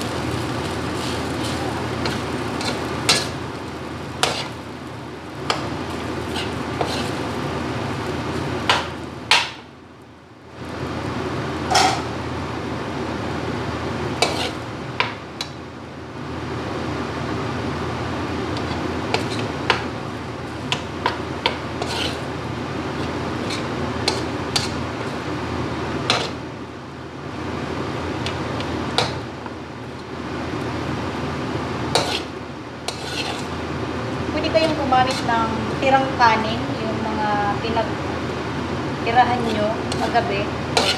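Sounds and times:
frying sizzle: 0.0s - 40.9s
metal utensils scraping a wok: 1.0s - 3.4s, 4.2s - 4.6s, 6.2s - 7.3s, 14.2s - 14.6s, 21.8s - 22.3s, 23.4s - 25.2s, 26.1s - 26.4s, 31.9s - 32.3s, 32.9s - 33.6s, 34.4s - 35.6s, 39.1s - 40.9s.

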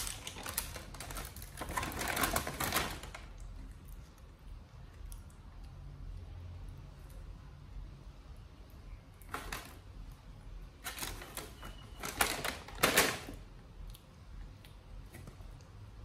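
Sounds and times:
plastic bag crinkling: 0.0s - 3.4s, 10.8s - 13.5s.

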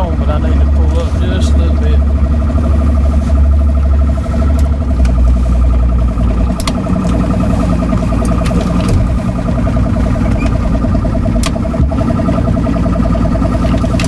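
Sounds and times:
boat motor running: 0.0s - 14.0s
fast-pulsing high tone: 0.0s - 14.0s
sharp clicks: 11.3s - 12.4s.

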